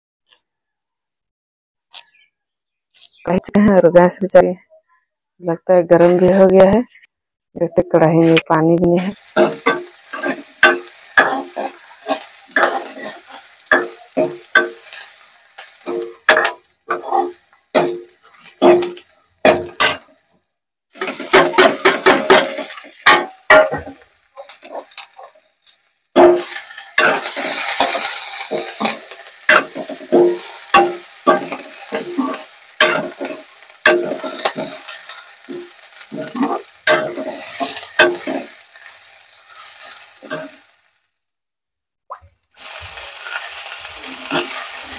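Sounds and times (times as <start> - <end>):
leaves sizzling in oil: 9.0 - 41.2, 42.1 - 44.9
ladle scraping metal pan: 26.2 - 38.5, 43.2 - 44.9.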